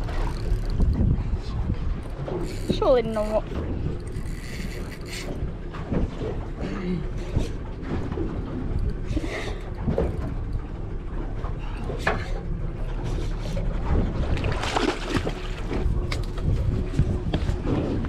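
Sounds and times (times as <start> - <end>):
wind buffeting microphone: 0.0 - 6.6, 11.4 - 18.0
splashes and knocks: 5.3 - 18.0
fish thrashing and splashing: 12.9 - 16.6.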